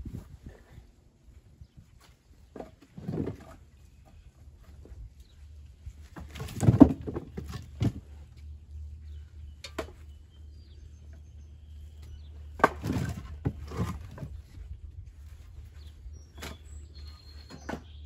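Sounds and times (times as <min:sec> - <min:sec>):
firewood clattering: 0:06.0 - 0:08.2, 0:12.6 - 0:14.6.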